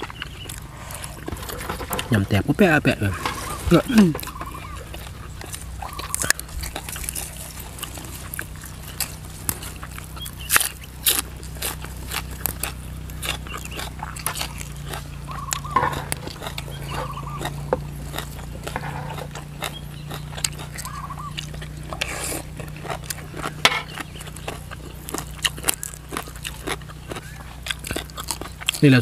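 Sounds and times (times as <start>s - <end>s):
crunching raw vegetables: 0.0s - 29.0s
steady low hum: 0.0s - 29.0s
mouth clicks: 11.8s - 28.8s.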